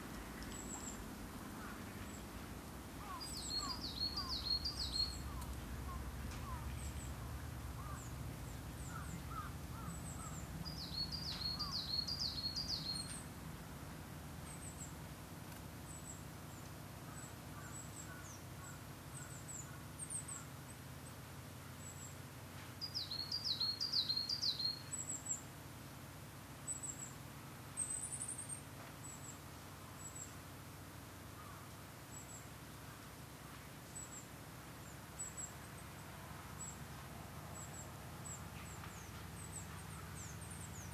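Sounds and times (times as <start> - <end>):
low wind rumble: 0.0 - 14.8
wild birds calling: 0.0 - 40.9.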